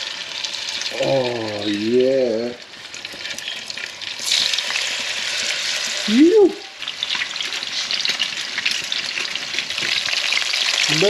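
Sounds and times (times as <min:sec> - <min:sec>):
fish sizzling in hot oil: 0:00.0 - 0:11.0
short voice sound: 0:06.1 - 0:06.7.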